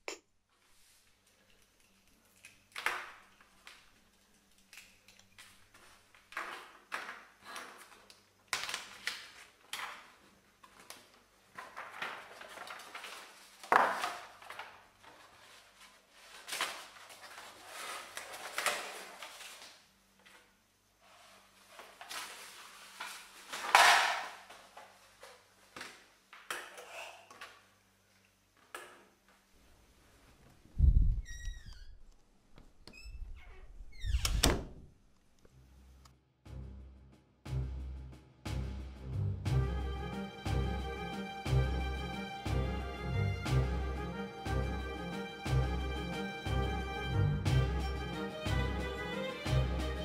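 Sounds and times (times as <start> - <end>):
rustling: 8.8 - 19.9.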